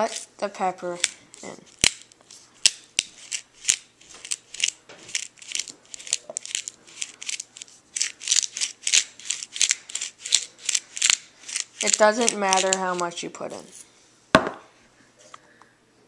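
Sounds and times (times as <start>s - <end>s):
pepper grinder crunching clicks: 1.0s - 13.0s.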